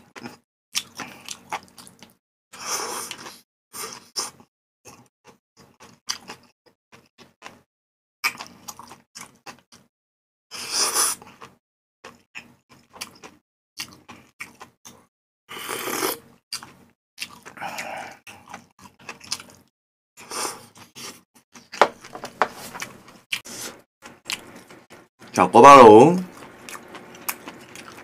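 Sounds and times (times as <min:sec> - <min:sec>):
slurping noodles: 0:10.5 - 0:11.6, 0:15.5 - 0:16.2
wet chewing: 0:26.3 - 0:28.0.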